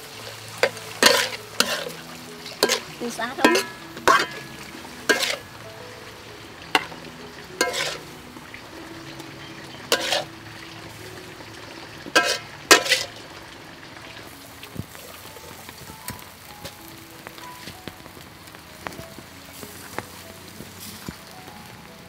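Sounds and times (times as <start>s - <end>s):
low sizzle: 0.0s - 22.0s
soft background music: 0.0s - 22.0s
metal spatula scraping a wok: 0.2s - 5.5s, 7.6s - 8.2s, 9.5s - 10.3s, 12.0s - 13.2s.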